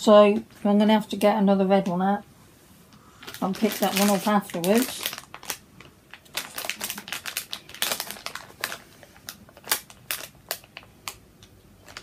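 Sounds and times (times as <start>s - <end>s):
plastic packet crinkling: 3.2s - 12.0s.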